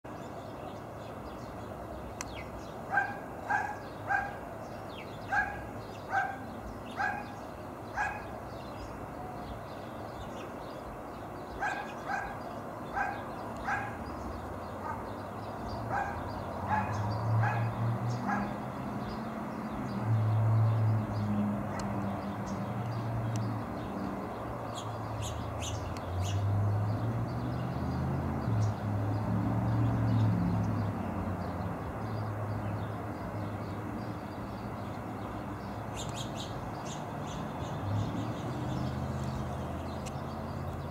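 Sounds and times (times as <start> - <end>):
dog barking: 2.9 - 4.4, 5.3 - 7.4, 8.0 - 8.3, 11.6 - 14.0, 14.8 - 15.2, 15.9 - 18.6.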